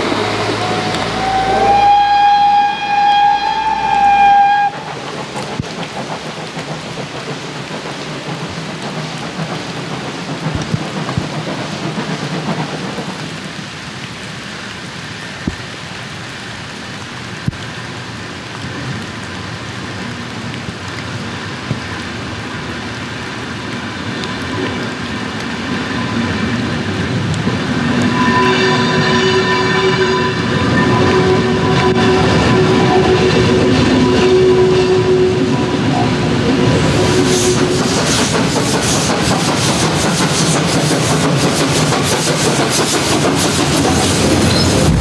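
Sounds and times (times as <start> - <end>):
steady rushing noise: 0.0 - 28.1, 30.4 - 45.0
steam locomotive whistle: 0.2 - 4.9, 27.9 - 38.3.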